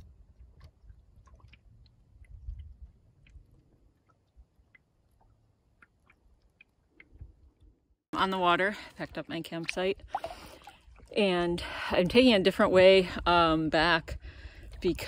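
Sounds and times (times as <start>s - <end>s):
wind rumble: 0.0s - 4.6s
ripples lapping against canoe hull: 0.0s - 12.6s, 14.2s - 15.0s.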